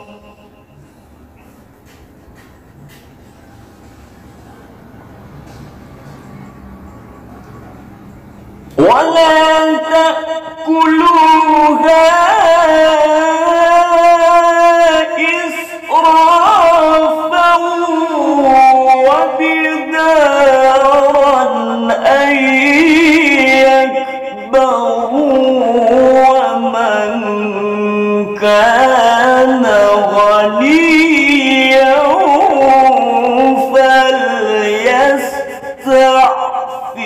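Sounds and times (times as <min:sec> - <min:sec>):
man reciting melodically: 0:00.0 - 0:03.6, 0:08.5 - 0:37.0.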